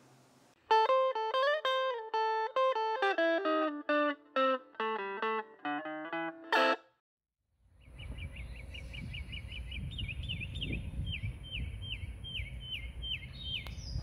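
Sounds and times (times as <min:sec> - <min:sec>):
songbird chirping: 0:07.7 - 0:14.0
wind rumbling on microphone: 0:07.8 - 0:14.0.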